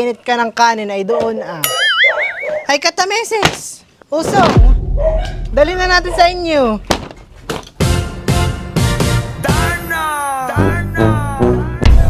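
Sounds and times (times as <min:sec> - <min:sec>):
background music with steady beat: 0:04.7 - 0:10.0.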